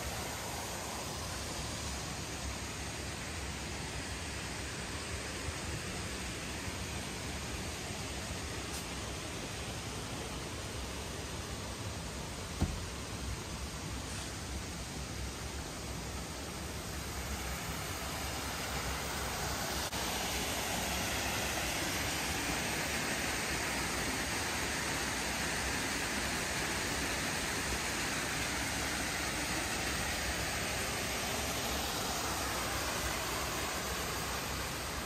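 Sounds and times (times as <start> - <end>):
stream water rushing: 0.0 - 35.0.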